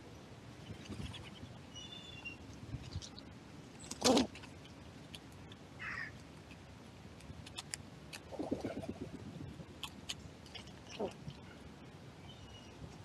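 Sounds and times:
low coo: 10.9s - 11.3s.

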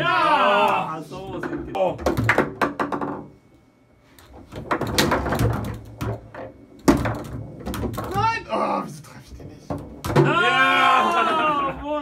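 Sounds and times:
foosball ball and rods clacking: 1.3s - 3.4s, 4.2s - 8.2s.

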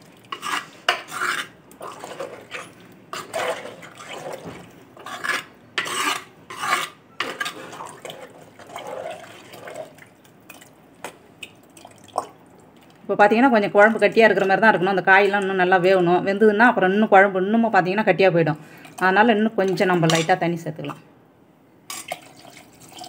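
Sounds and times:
ladle scraping a clay pot: 0.2s - 10.1s.

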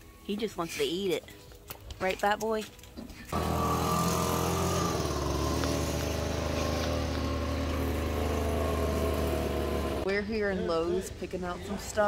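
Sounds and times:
engine running steadily: 3.3s - 10.1s.

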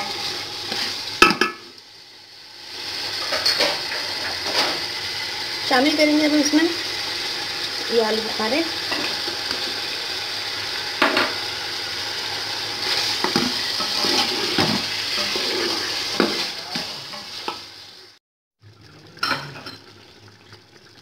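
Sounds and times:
meat sizzling in a pot: 0.0s - 21.0s
spoon scraping a pot: 12.8s - 17.6s.

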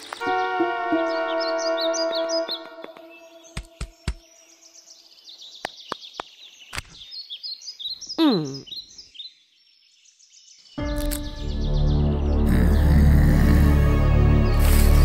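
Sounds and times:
background music: 0.0s - 4.0s, 10.8s - 15.0s
birds chirping and twittering: 0.0s - 15.0s.

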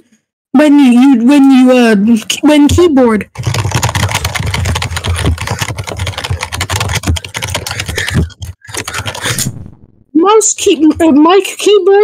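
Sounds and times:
fast typing on keyboard: 3.3s - 9.5s.

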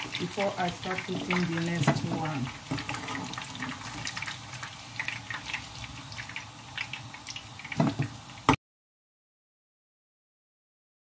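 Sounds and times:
oil sizzling in a frying pan: 0.0s - 8.6s.

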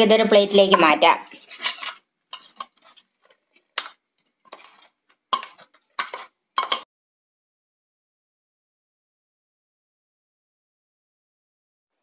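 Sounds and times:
spoon scraping metal jar: 0.6s - 6.8s.

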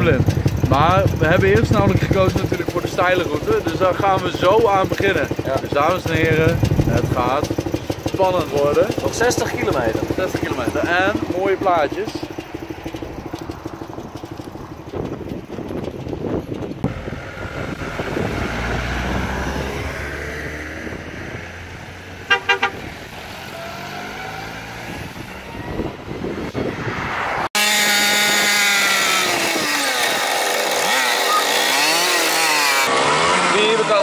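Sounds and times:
moped engines running: 0.0s - 26.8s, 27.5s - 34.0s
moped engine revving: 0.0s - 34.0s
horn toots: 22.2s - 23.6s, 27.6s - 30.2s.

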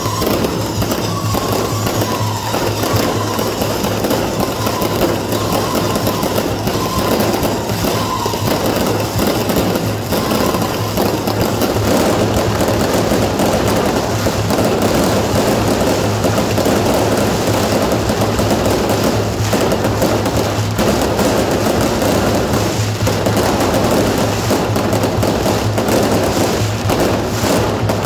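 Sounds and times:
firecrackers crackling: 0.0s - 28.0s
firework shells bursting: 0.0s - 28.0s.

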